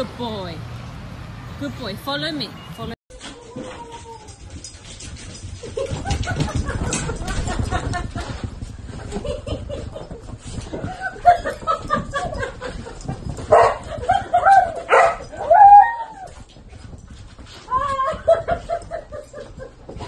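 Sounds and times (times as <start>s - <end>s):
dogs yipping and whining: 3.2s - 7.5s, 10.8s - 20.0s.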